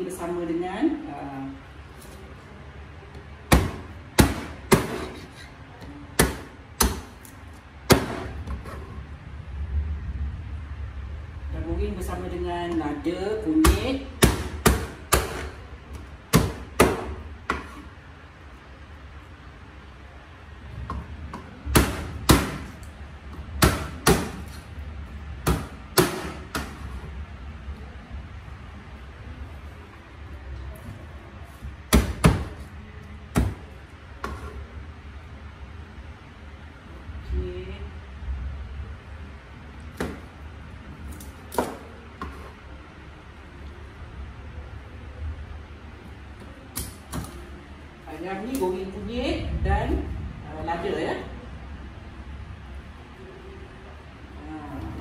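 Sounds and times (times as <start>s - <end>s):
knife chopping on board: 3.5s - 5.2s.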